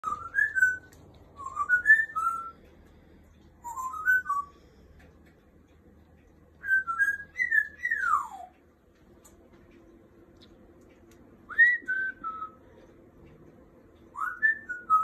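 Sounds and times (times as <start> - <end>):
parrot whistling: 0.0 - 2.5, 3.6 - 4.6, 6.6 - 8.6, 11.5 - 12.6, 14.1 - 15.0.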